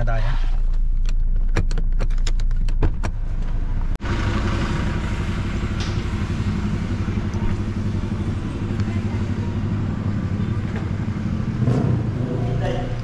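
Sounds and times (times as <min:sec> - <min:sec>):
vehicle engine idling: 0:03.2 - 0:13.0.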